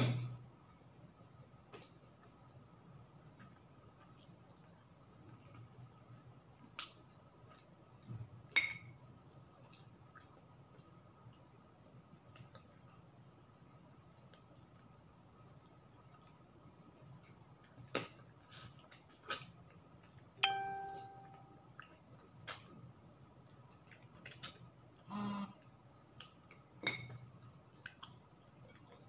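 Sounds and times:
chewing and mouth clicks: 3.4 - 5.8, 9.2 - 11.4, 15.6 - 16.4, 17.2 - 20.3, 21.7 - 26.7, 27.4 - 29.0
ceramic plate ringing: 20.4 - 21.4.

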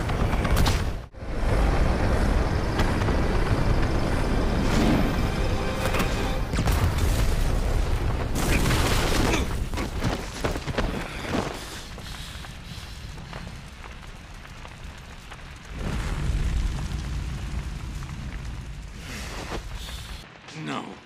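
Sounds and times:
explosions and fire rumble: 0.0 - 21.0
dramatic music: 3.3 - 7.3
explosion booms: 15.7 - 20.2.

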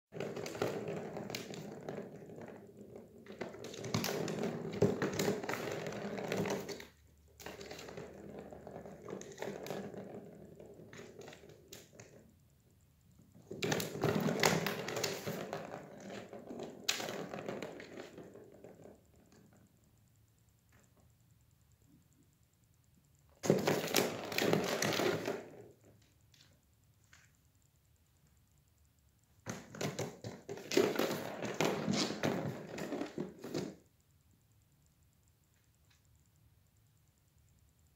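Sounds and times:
ball rattling in plastic track: 0.2 - 12.4, 13.4 - 19.7, 23.4 - 26.1, 29.4 - 33.9.

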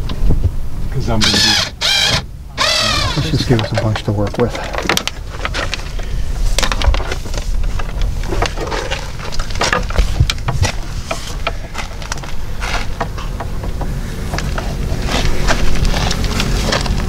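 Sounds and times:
steady low rumble: 0.0 - 17.0
clicks and rustles: 1.2 - 17.0.

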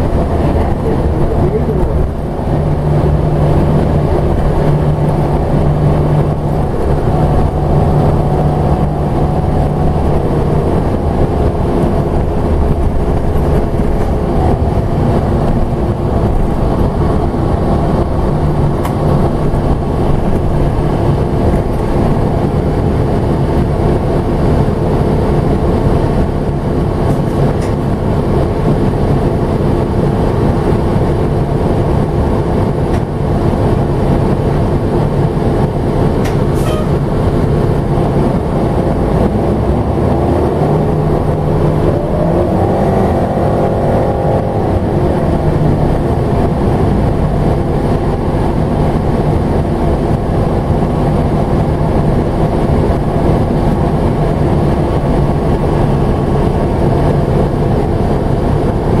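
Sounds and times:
bus engine and road rumble: 0.0 - 59.0
rising whine: 0.0 - 59.0.

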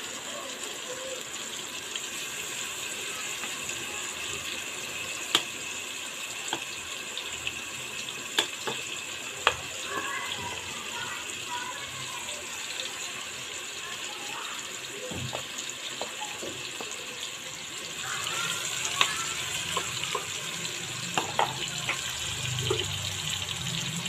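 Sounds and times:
chicken sizzling in oil: 0.0 - 24.0
oil popping: 21.1 - 23.1.

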